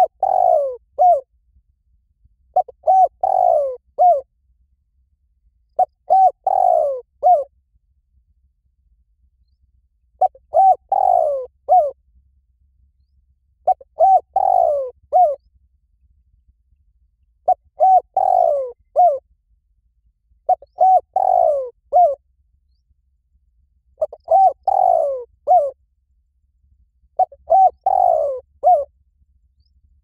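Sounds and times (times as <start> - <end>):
dove cooing: 0.0 - 1.2, 2.5 - 4.3, 5.8 - 7.5, 10.2 - 12.0, 13.6 - 15.4, 17.4 - 19.2, 20.5 - 22.2, 24.0 - 25.8, 27.2 - 28.9.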